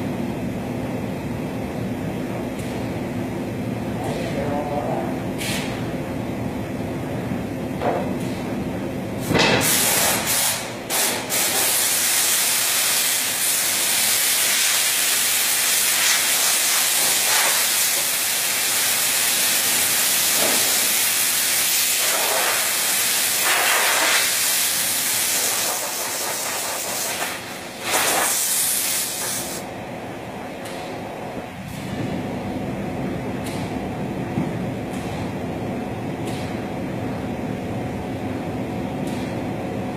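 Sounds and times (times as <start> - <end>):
loud hiss: 9.6 - 29.6.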